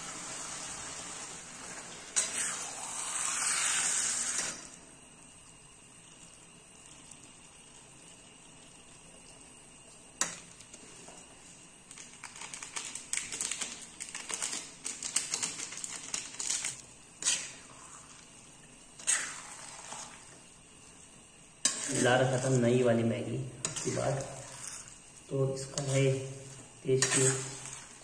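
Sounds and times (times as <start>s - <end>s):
metal spoon scraping a pan: 16.6s - 18.0s, 21.6s - 22.7s, 23.6s - 24.9s, 25.6s - 28.0s.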